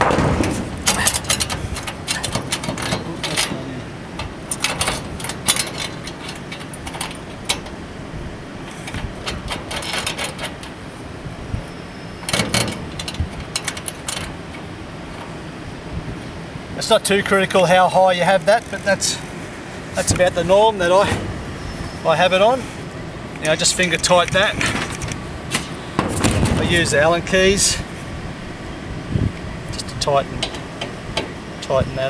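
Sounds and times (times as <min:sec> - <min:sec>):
metal rail clicking and scraping: 0:00.0 - 0:07.9, 0:08.6 - 0:10.9, 0:12.2 - 0:15.4, 0:23.4 - 0:27.9, 0:29.7 - 0:31.4.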